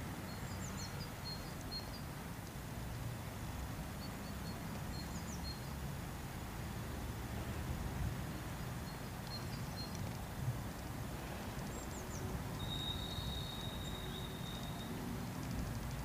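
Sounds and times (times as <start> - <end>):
high bird whistles: 12.6 - 15.0.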